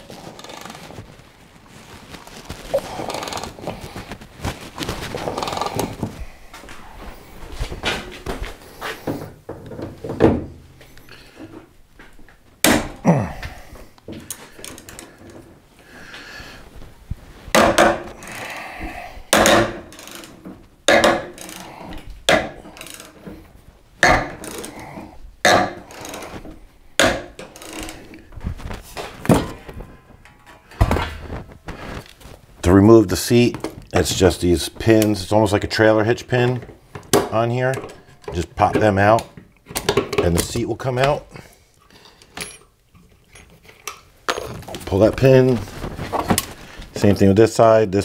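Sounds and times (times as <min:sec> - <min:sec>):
metal clanks and knocks: 0:29.2 - 0:31.3.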